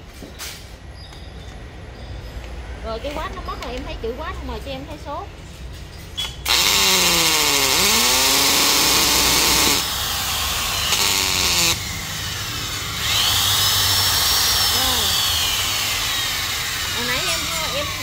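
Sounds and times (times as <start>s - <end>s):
hammer drill motor running: 6.4s - 18.0s
drill motor rising whine: 6.5s - 18.0s.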